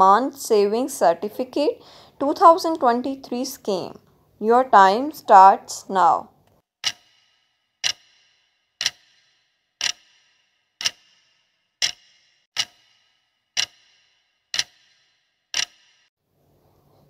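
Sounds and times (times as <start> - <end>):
clock ticks with ringing tail: 6.8 - 16.1.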